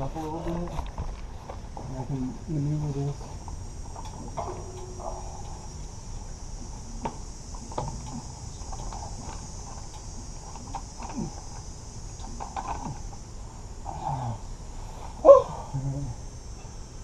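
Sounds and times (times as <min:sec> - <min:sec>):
steady high hiss: 0:00.0 - 0:17.0
steel cage knocking and clanking: 0:04.0 - 0:05.8.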